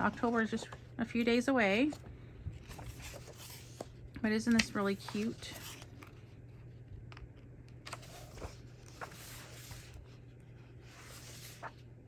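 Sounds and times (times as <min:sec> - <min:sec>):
paper rustling: 0:00.0 - 0:06.5, 0:07.1 - 0:11.9
pages turning: 0:01.8 - 0:06.5, 0:07.1 - 0:11.9.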